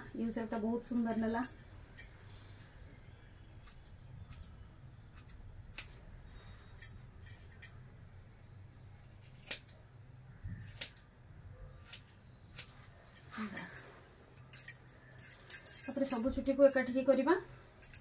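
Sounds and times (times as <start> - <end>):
scissors snipping hair: 5.1 - 6.0, 9.0 - 9.8, 10.6 - 11.1, 11.8 - 13.8.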